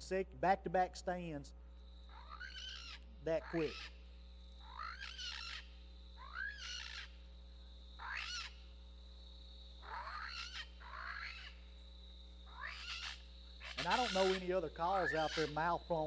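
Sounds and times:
predator call squealing: 2.1s - 4.0s, 4.6s - 7.2s, 8.0s - 8.6s, 9.8s - 11.6s, 12.4s - 16.0s.

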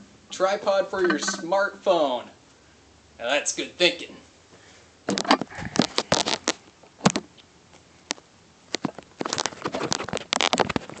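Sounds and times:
recording device handling noise: 1.0s - 1.7s, 5.1s - 11.0s.

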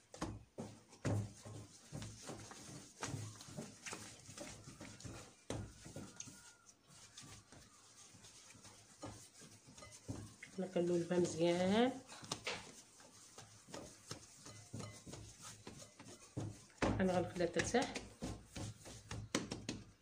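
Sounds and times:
dough thumping and rubbing: 0.0s - 20.0s.

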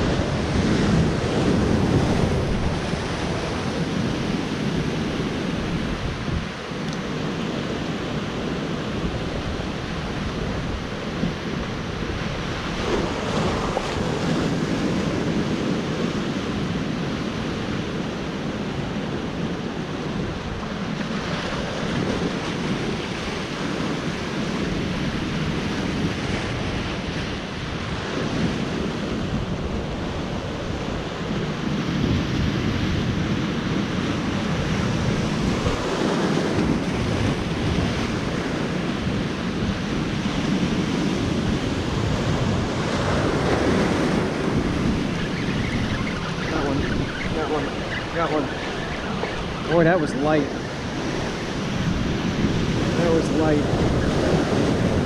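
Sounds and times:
surf breaking over rocks: 0.0s - 16.5s, 33.5s - 55.0s
wind rumbling on microphone: 0.0s - 55.0s.

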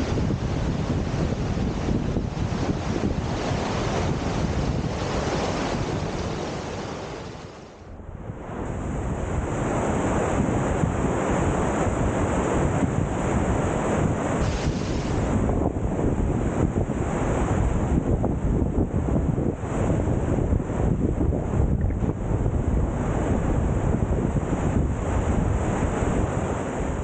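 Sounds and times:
wind buffeting microphone: 0.0s - 27.0s
waterfall rushing over rocks: 14.4s - 15.3s.

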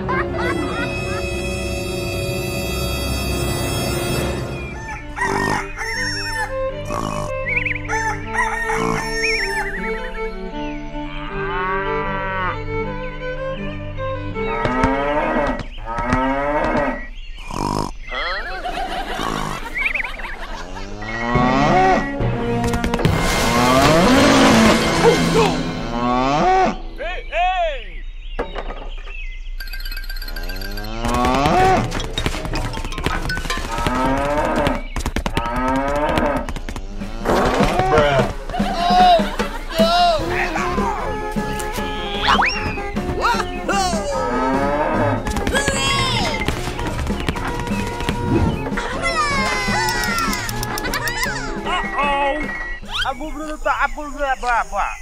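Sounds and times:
background music of held notes: 0.0s - 15.8s, 20.4s - 27.3s, 37.0s - 54.4s
cow mooing: 8.6s - 9.3s, 11.2s - 12.7s, 14.5s - 17.9s, 20.6s - 22.2s, 23.7s - 26.9s, 30.7s - 32.0s, 33.7s - 34.8s, 35.4s - 38.4s, 40.2s - 45.5s
sharp clicks and taps: 30.0s - 36.9s, 49.4s - 51.4s.

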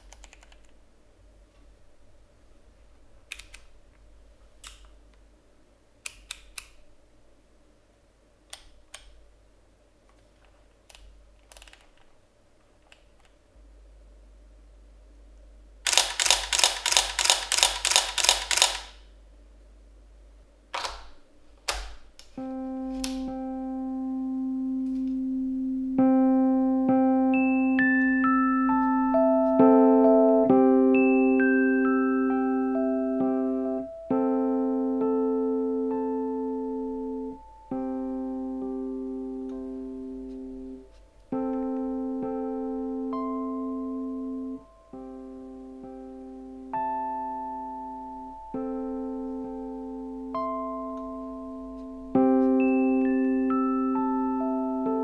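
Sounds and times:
electric piano music: 22.4s - 55.0s.

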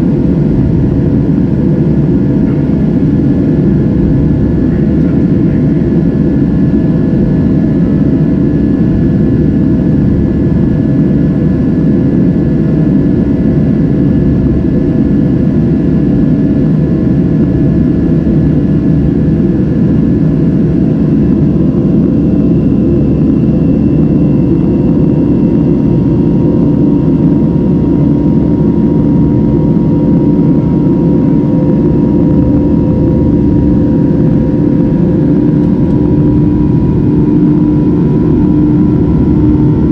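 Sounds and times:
airplane cabin rumble: 0.0s - 39.9s
faint engine whining tones: 0.0s - 39.9s.

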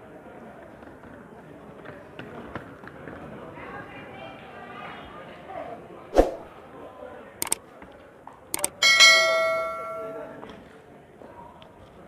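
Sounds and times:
notification bell ding: 8.8s - 10.4s.

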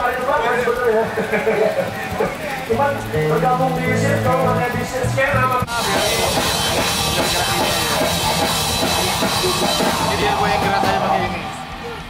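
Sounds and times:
soft sustained notes: 2.6s - 6.3s
loud rock music with fast drumming: 5.0s - 11.5s.

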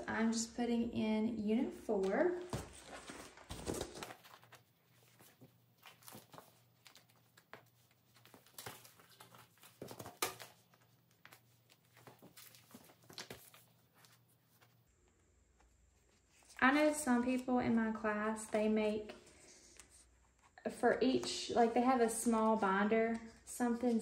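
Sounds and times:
paper rustling: 2.4s - 14.8s.

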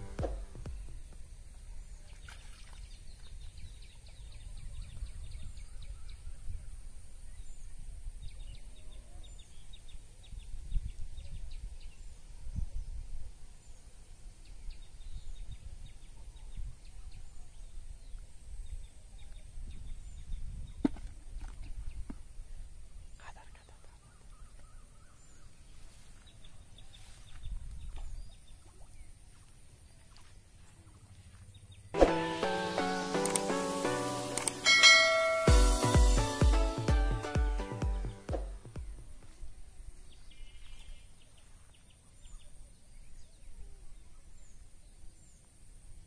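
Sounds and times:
wind rumble on microphone: 2.8s - 23.2s, 26.4s - 29.1s
small birds chirping: 12.9s - 31.9s.

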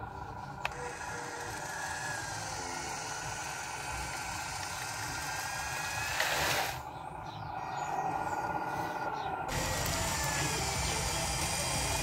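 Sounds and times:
electric motor whining: 0.0s - 6.9s, 9.5s - 12.0s.

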